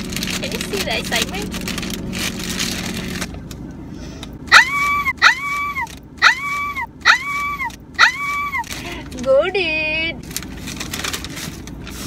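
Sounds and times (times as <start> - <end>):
plastic packaging tearing: 0.0 - 3.3, 10.2 - 12.0.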